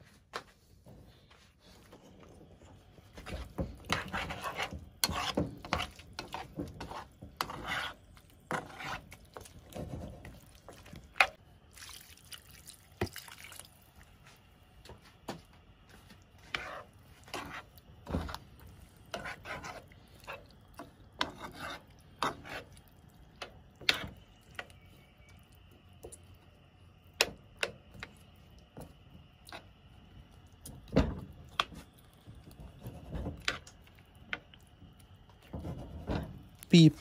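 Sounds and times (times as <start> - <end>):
utensil scraping a pan: 3.1 - 11.4, 16.4 - 22.8, 23.8 - 25.2.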